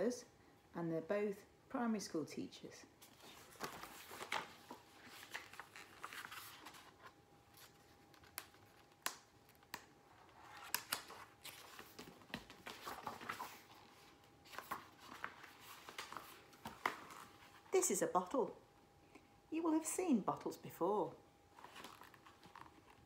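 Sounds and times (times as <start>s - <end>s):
book pages rustling: 3.0s - 17.8s, 21.5s - 23.0s.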